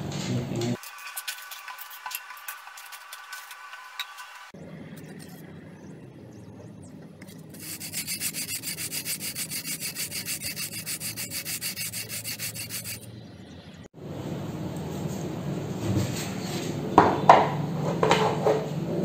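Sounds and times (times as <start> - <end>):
plastic rubbing on sandpaper: 0.8 - 4.5, 7.5 - 13.1.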